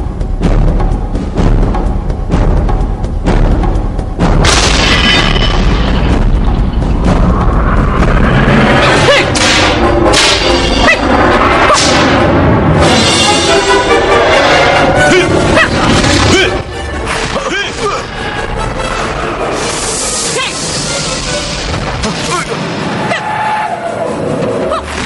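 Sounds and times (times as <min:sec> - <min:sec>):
dramatic soundtrack music: 0:00.0 - 0:25.0
deep booming hits: 0:00.1 - 0:13.7
martial arts sound effects: 0:06.0 - 0:18.1.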